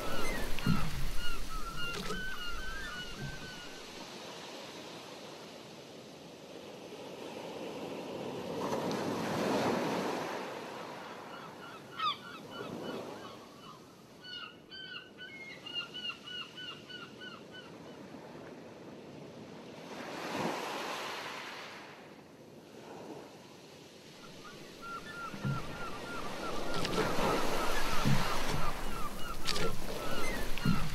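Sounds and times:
sea waves washing: 0.0 - 5.8, 24.1 - 30.9.

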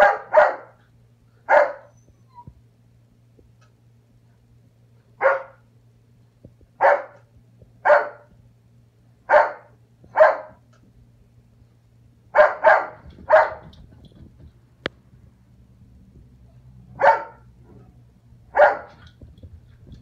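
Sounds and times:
puppy barking: 0.0 - 0.8, 1.5 - 2.1, 5.2 - 5.6, 6.8 - 7.2, 7.8 - 8.3, 9.3 - 10.6, 12.4 - 13.8, 16.9 - 17.9, 18.5 - 19.1.

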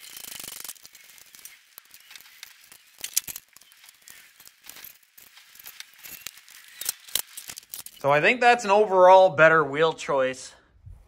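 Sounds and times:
metallic clicks and clinks: 0.0 - 8.1.

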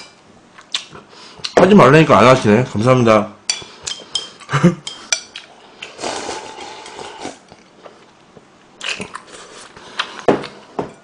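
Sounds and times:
slurping broth: 5.8 - 7.5.

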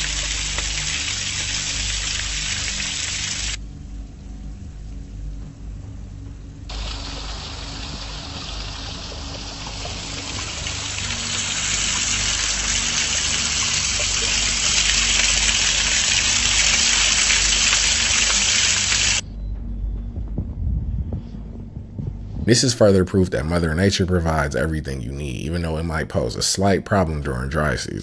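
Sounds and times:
waterfall splashing: 0.0 - 3.6, 6.7 - 19.2.

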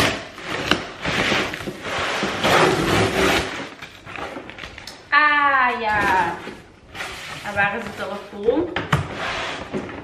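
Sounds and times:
cardboard and tape tearing: 0.0 - 4.9.

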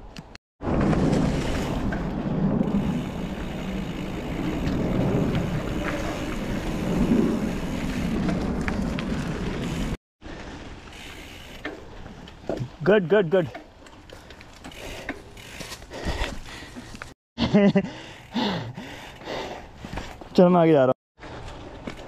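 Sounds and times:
wind rumbling on microphone: 0.6 - 10.0.

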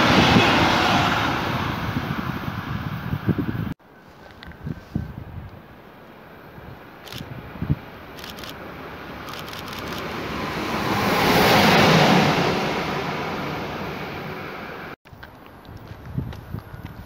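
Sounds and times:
freight train rumbling past: 0.0 - 3.8, 7.4 - 15.0.

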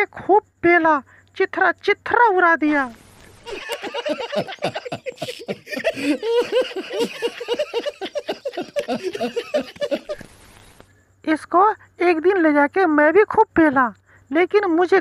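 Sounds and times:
men laughing: 3.4 - 10.3.

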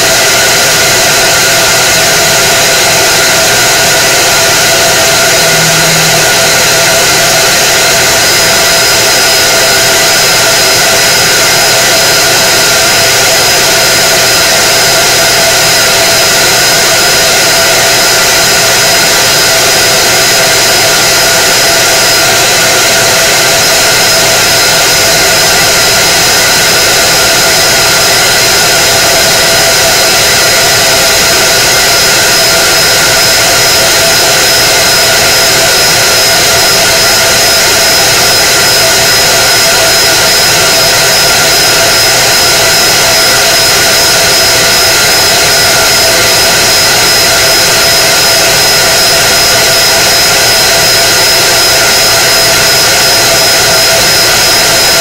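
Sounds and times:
laser cutter fans whirring: 0.0 - 55.0
steady high tones: 4.0 - 9.0.

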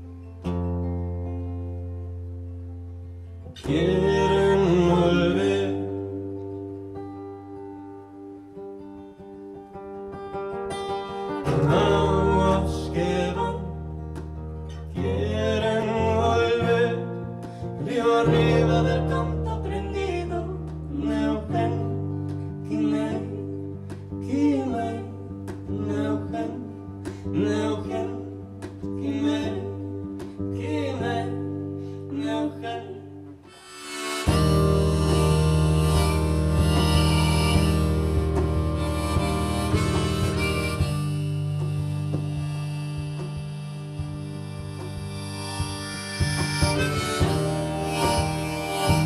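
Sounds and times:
acoustic guitar: 0.0 - 49.0
woman singing: 3.6 - 6.3, 11.4 - 14.0, 14.9 - 33.4.

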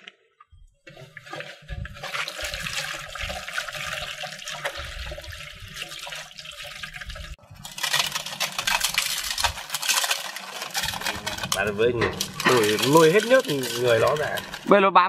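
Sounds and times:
hands rubbing slimy eels: 0.9 - 14.7
water splashing into metal basin: 0.9 - 14.7
salt pattering onto metal basin: 7.6 - 14.7.

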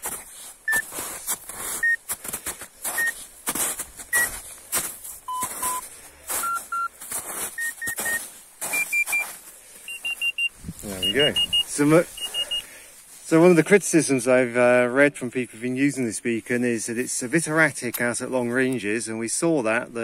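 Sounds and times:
footsteps crunching in snow: 0.0 - 14.0
transceiver beeping: 0.7 - 0.9, 1.8 - 2.0, 3.0 - 3.2, 4.1 - 4.3, 5.3 - 6.9, 7.6 - 9.3, 9.9 - 12.7.

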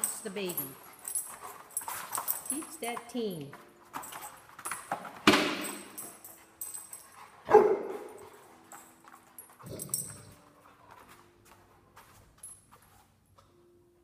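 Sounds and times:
big dog barking: 7.4 - 8.2.

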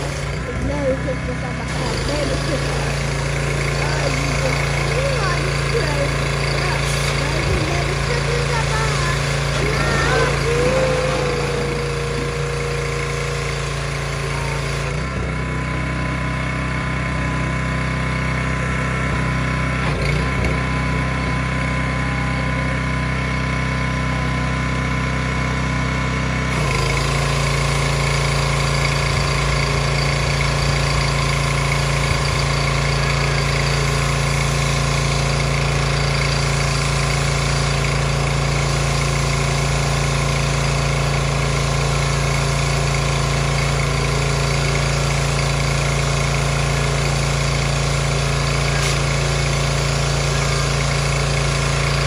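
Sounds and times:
pressure washer engine running: 0.0 - 52.0
water jet spraying on concrete: 1.1 - 15.1, 26.3 - 52.0.

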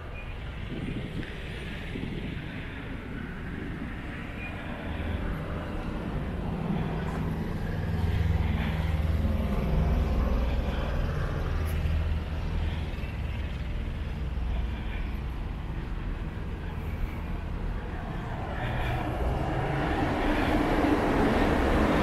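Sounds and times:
passing vehicle engine hum: 0.0 - 22.0.

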